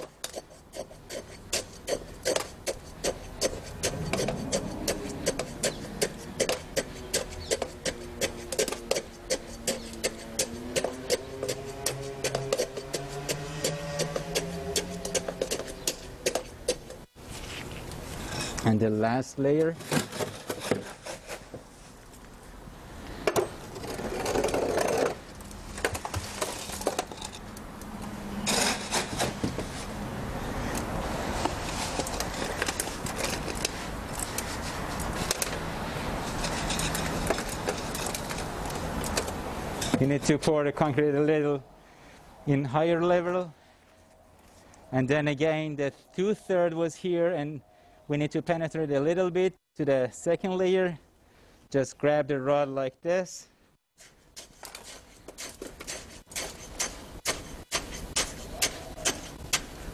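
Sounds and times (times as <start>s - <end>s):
rod clicking in concrete: 0.0s - 17.0s
metal scoop scraping concrete: 0.0s - 21.5s, 23.7s - 25.2s, 28.3s - 30.0s, 31.2s - 38.8s, 54.0s - 59.7s.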